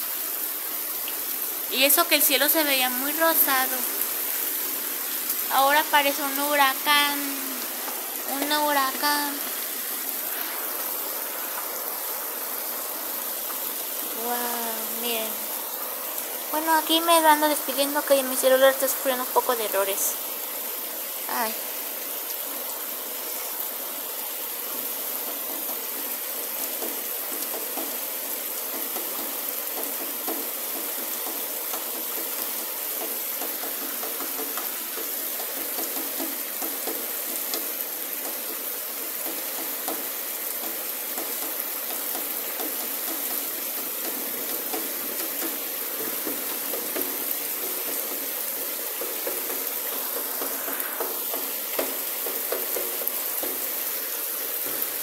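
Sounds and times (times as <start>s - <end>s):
heavy rain pouring: 0.0s - 55.0s.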